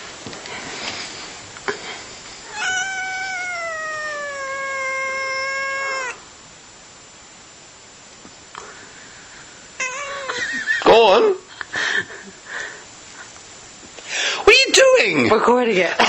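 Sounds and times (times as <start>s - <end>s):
cat meowing: 2.5s - 6.2s, 9.8s - 10.4s.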